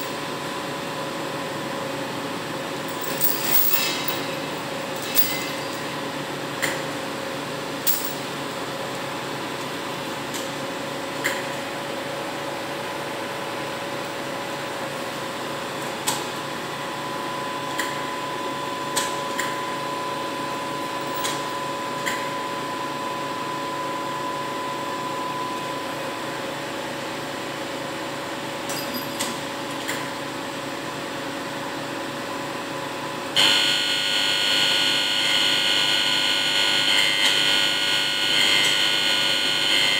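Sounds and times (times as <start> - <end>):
metallic chain clinks: 2.9 - 5.9, 7.9 - 8.3, 21.0 - 21.5, 28.7 - 29.4.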